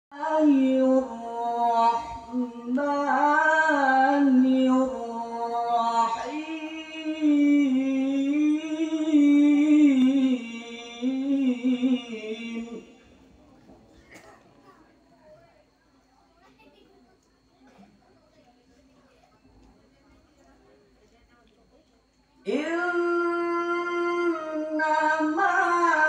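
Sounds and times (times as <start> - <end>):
man reciting melodically into microphone: 0.1 - 13.0, 22.5 - 26.0.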